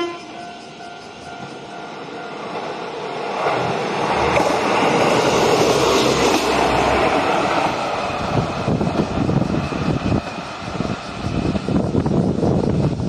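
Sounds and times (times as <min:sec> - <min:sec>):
train passing at speed: 0:00.0 - 0:13.0
sharp knocks of train wheels: 0:03.3 - 0:13.0.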